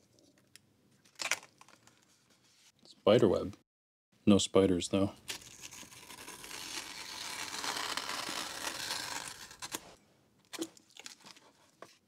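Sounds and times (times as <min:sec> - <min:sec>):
knife cutting paper: 0:05.4 - 0:10.0.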